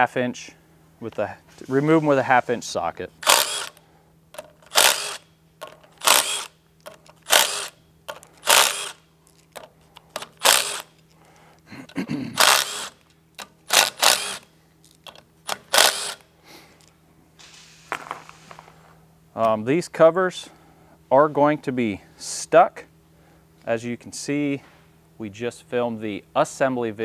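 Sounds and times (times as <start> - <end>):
cordless drill spinning bolts: 3.2 - 3.8, 4.4 - 11.0, 12.4 - 16.2.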